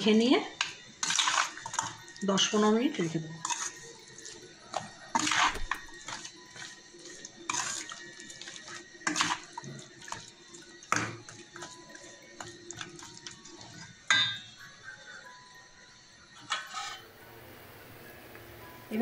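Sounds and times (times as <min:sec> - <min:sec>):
faint music: 0:00.0 - 0:19.0
spoon mixing in metal bowl: 0:00.6 - 0:14.4.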